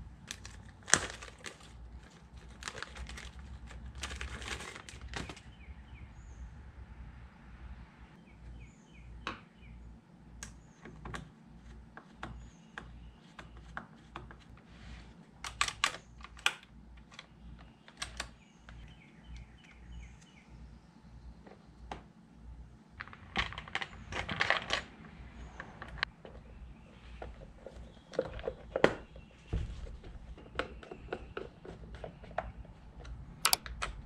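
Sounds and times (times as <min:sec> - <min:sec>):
plastic parts clicking and knocking: 0:00.2 - 0:05.6, 0:10.4 - 0:14.7, 0:15.3 - 0:20.3, 0:23.0 - 0:34.0.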